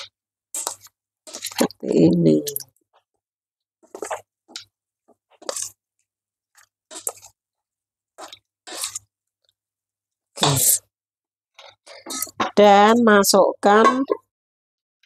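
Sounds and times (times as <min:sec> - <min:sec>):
spoon stirring meat in a metal bowl: 0:00.0 - 0:01.9, 0:03.8 - 0:07.4, 0:08.1 - 0:09.6, 0:11.5 - 0:12.9.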